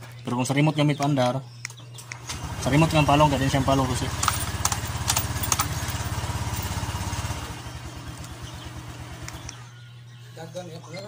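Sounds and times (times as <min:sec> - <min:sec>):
scooter engine idling: 0:02.3 - 0:09.8
sharp clicks: 0:04.1 - 0:05.8, 0:09.2 - 0:09.6.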